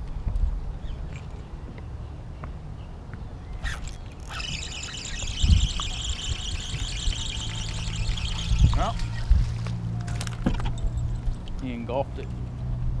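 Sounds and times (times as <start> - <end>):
sharp reel clicks: 3.6 - 9.3
fishing reel buzzing: 3.6 - 9.6
wind rumble on microphone: 4.5 - 11.6.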